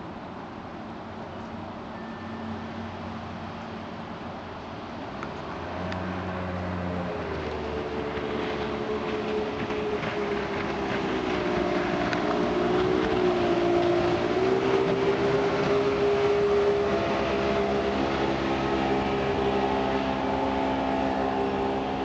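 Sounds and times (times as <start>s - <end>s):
rushing water: 0.0s - 22.0s
outboard motor running: 5.6s - 22.0s.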